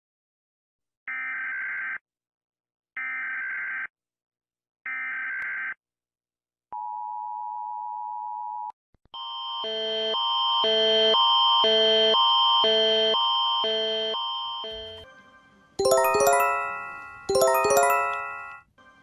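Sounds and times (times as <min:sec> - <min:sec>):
multi-tone alert: 0:15.8 - 0:18.7.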